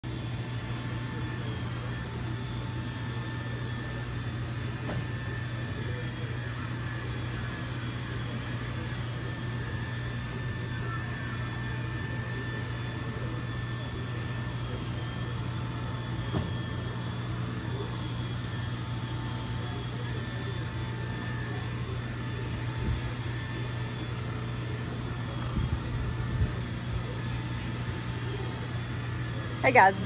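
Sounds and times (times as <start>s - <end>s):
robot vacuum running: 0.1s - 30.0s.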